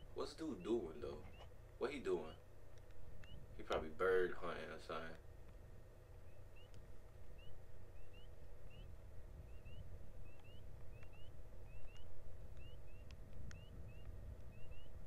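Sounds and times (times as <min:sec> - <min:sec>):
small bird chirping: 0:00.0 - 0:15.0
faint ticks: 0:02.7 - 0:04.0, 0:06.2 - 0:08.9, 0:09.5 - 0:15.0.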